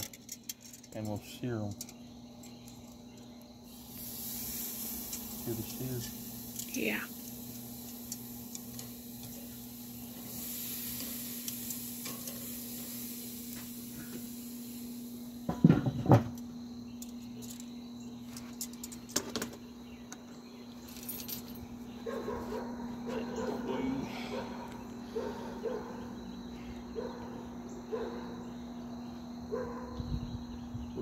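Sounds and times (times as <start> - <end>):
steaks sizzling on a grill: 3.2 - 16.4.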